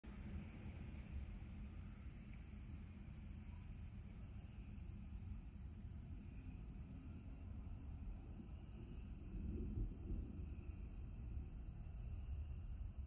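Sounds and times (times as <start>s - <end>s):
high-pitched insect chorus: 0.1s - 13.0s.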